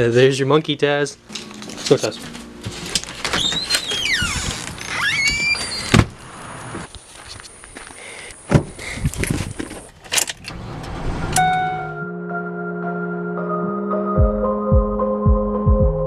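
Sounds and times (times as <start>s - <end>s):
footsteps: 1.3s - 5.7s, 6.7s - 9.9s
short rising squeak: 3.3s - 6.0s
steady music tones: 11.2s - 16.0s.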